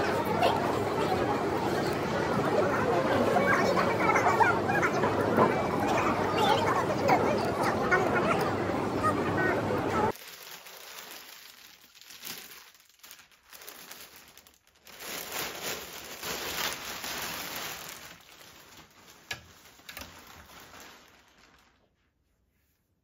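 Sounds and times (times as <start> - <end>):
plastic bag crinkling: 10.1 - 22.1.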